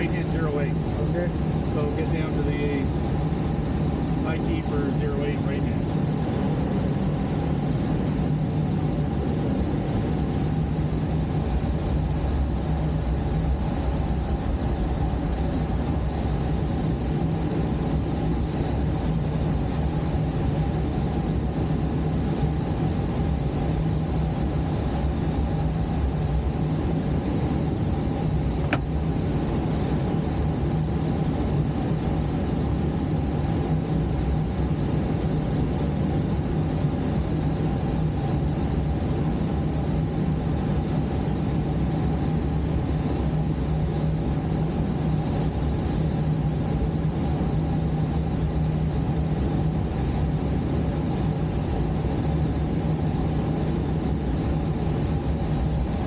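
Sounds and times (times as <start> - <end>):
plane engine and propeller drone: 0.0 - 56.0
rush of airflow: 0.0 - 56.0
click: 28.6 - 28.9.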